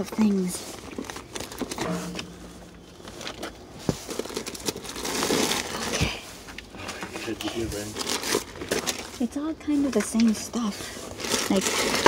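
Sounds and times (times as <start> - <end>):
plastic bags rustling: 7.2 - 9.2, 10.6 - 12.0.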